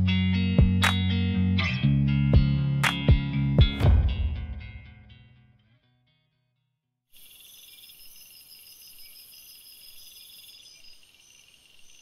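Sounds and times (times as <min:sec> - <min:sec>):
insects chirping in trills: 0:07.1 - 0:12.0.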